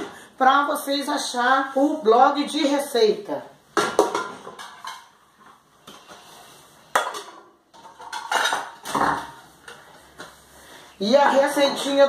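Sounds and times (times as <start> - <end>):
metal pots and pans clanking: 3.8 - 5.2, 6.9 - 9.9.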